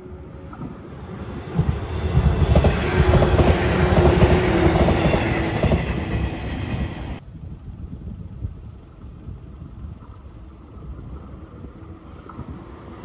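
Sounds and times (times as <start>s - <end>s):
train wheels rumbling: 0.0s - 7.2s.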